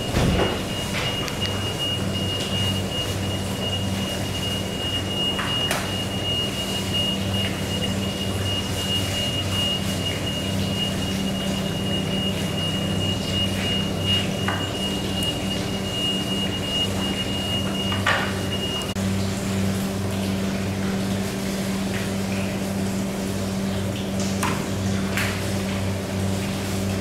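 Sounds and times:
low mechanical hum: 0:00.0 - 0:27.0.

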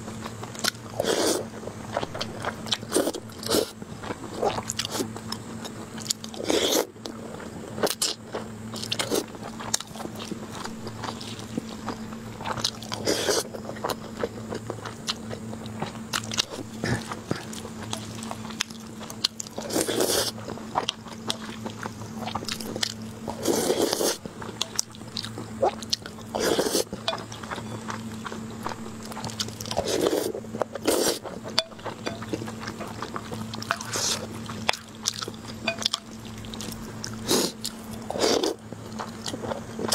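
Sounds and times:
wet chewing: 0:00.0 - 0:39.9
slurping: 0:01.0 - 0:03.8, 0:06.4 - 0:06.9, 0:19.6 - 0:20.4, 0:22.4 - 0:24.3, 0:25.6 - 0:27.2, 0:29.4 - 0:31.4, 0:36.5 - 0:39.9.

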